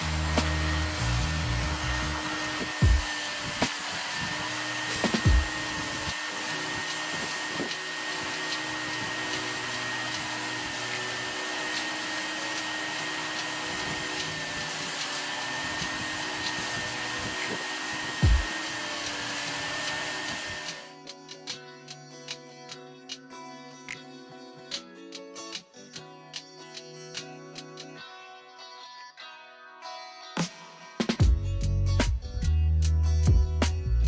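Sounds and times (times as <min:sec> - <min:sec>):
steam cleaner hissing: 0:00.0 - 0:20.9.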